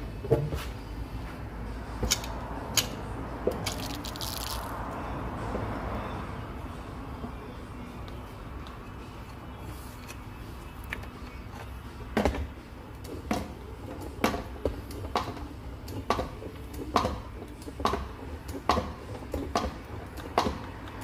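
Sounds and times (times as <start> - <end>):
ratchet wrench clicking: 2.0 - 4.7.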